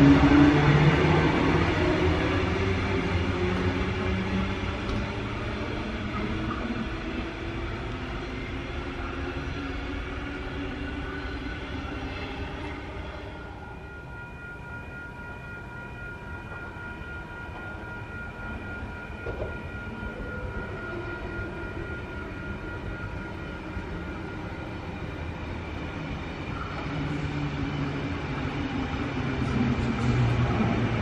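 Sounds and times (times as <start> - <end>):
electric train approaching: 0.0 - 31.0.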